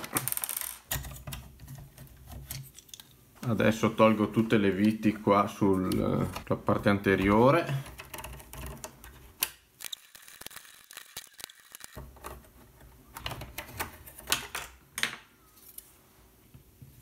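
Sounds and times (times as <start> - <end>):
small screws clicking: 9.4 - 12.0.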